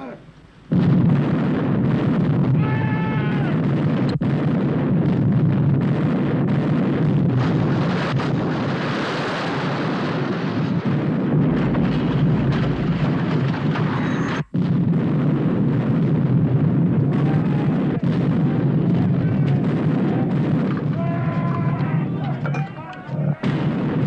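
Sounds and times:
cannons firing: 0:00.0 - 0:24.0.

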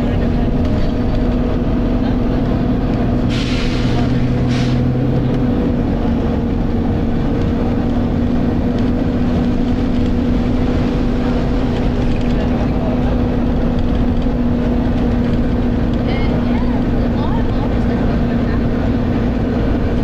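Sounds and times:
bus diesel engine running: 0:00.0 - 0:20.0
short hisses: 0:03.3 - 0:04.9.

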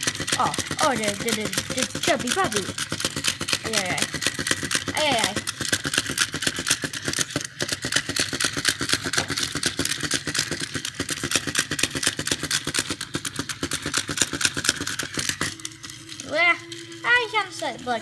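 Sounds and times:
toy motor clicking rattle: 0:00.0 - 0:18.0.

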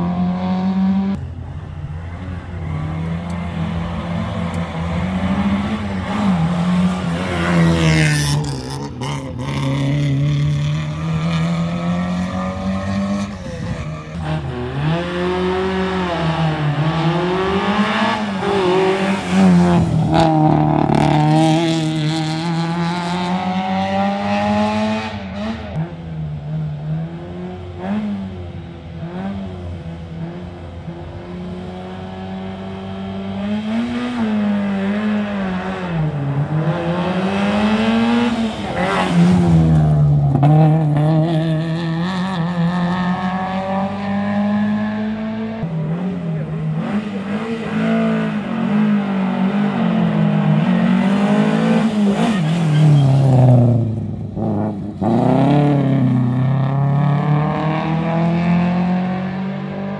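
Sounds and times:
rally car engines revving: 0:00.0 - 0:59.9.

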